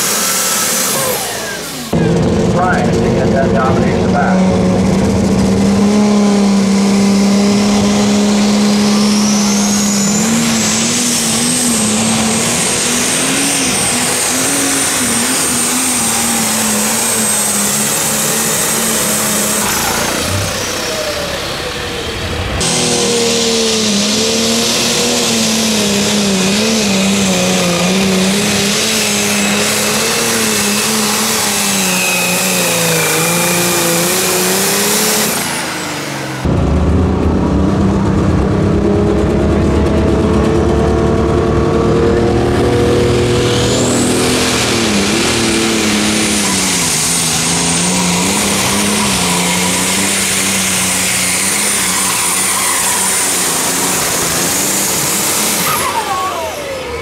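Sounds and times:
diesel tractor engine under load: 0.0 - 57.0
high turbo whistle: 6.9 - 36.5, 42.1 - 57.0.

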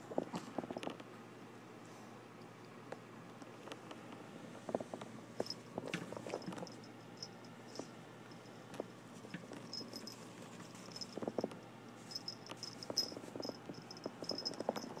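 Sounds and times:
puppy claws tapping and scrabbling: 8.8 - 15.0.

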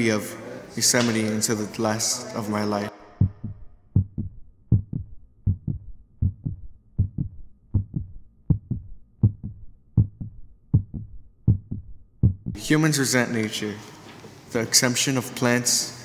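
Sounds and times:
heartbeat thumps: 3.1 - 12.6.

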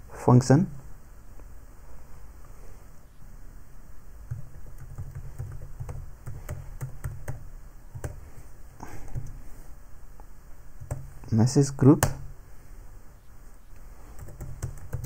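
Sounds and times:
keyboard typing: 4.3 - 8.2, 10.8 - 11.2, 14.1 - 15.0.

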